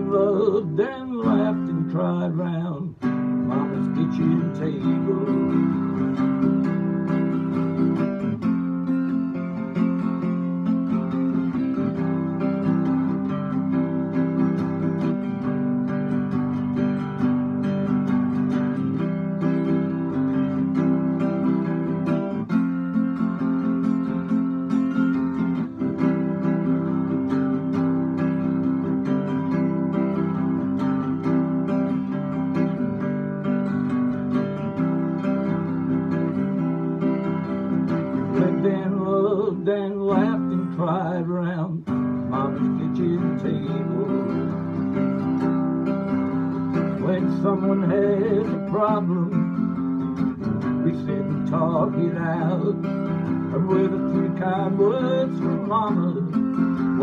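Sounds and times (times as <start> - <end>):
wordless singing voice: 0.0 - 6.4, 38.0 - 45.2, 46.6 - 49.8, 50.6 - 57.0
acoustic guitar strumming: 0.0 - 57.0.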